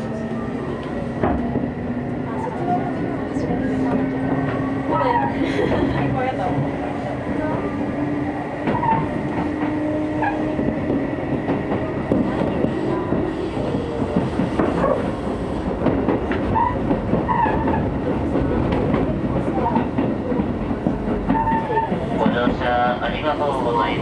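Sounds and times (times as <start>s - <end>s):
train wheels rumbling on rail: 0.0s - 24.0s.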